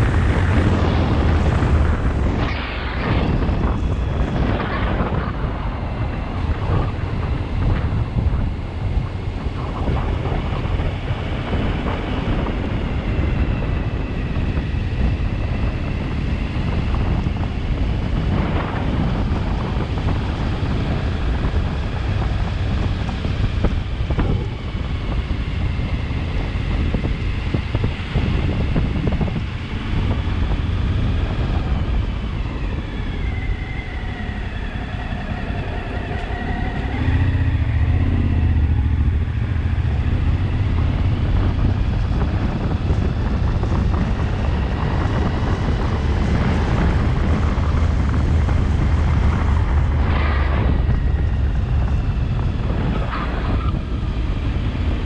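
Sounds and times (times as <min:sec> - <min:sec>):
wind rush on microphone: 0:00.0 - 0:55.0
motorcycle engine running: 0:36.4 - 0:55.0.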